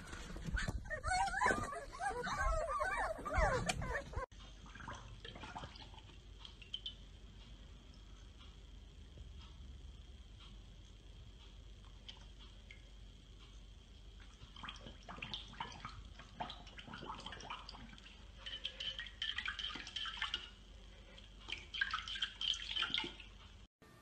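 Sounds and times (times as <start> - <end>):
puppy splashing water in bowl: 3.7 - 7.0, 14.2 - 23.4.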